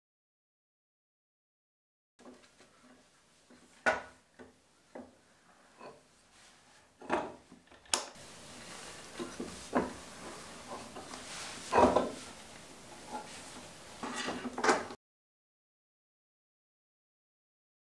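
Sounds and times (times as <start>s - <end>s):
wooden vise knocks and clicks: 3.8s - 5.2s
scraping clunk: 9.1s - 12.3s, 14.0s - 15.0s.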